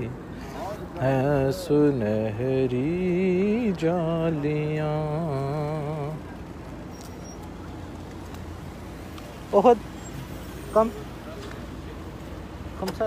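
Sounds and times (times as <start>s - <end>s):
man singing unaccompanied: 0.0s - 6.3s
low street hum: 0.0s - 13.0s.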